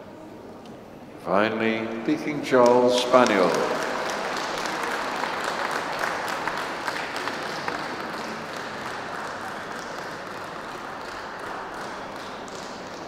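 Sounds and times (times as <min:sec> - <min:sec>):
audience applauding: 0:02.1 - 0:13.0.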